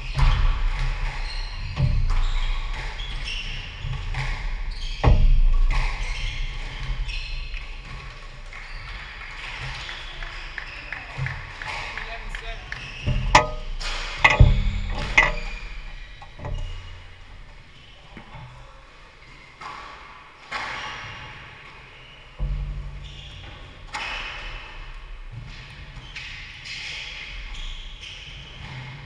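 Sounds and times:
echoing thumps and knocks: 0:00.0 - 0:18.8.

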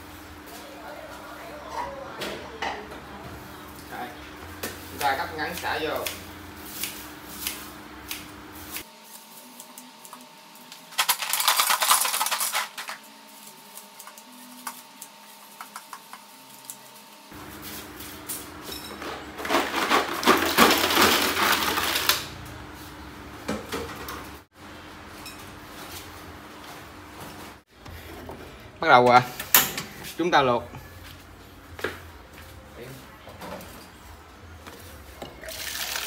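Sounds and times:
clatter in a metal pot: 0:11.0 - 0:12.9.

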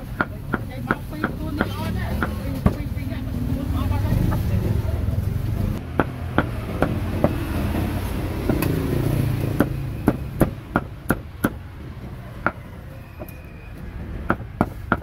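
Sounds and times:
cleaver chopping on wooden board: 0:00.0 - 0:02.8, 0:05.9 - 0:07.5, 0:09.4 - 0:11.6
low traffic rumble: 0:00.0 - 0:15.0.

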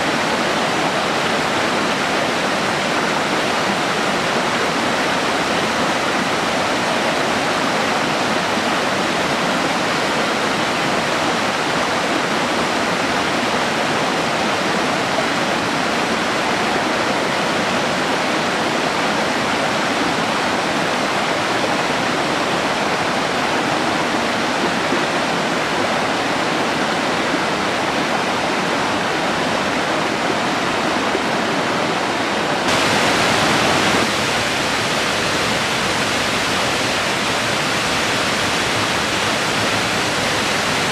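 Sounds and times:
creek rushing over rocks: 0:00.0 - 0:40.9
waterfall pouring into pool: 0:32.7 - 0:40.9.

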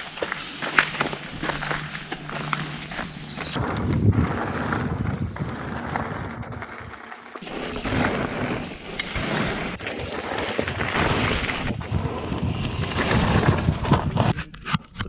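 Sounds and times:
bike tyres on rough trail: 0:00.0 - 0:14.3
bike rattling and clicking: 0:00.2 - 0:14.3
wind buffeting microphone: 0:02.6 - 0:09.8, 0:10.9 - 0:14.4.

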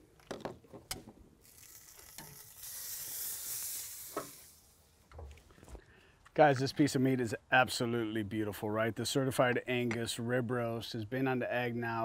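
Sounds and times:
meat sizzling on grill: 0:01.5 - 0:04.7.

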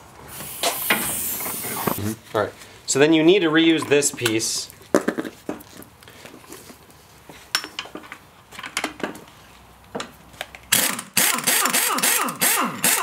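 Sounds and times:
pneumatic impact wrench bursts: 0:00.3 - 0:02.0, 0:10.7 - 0:13.0.

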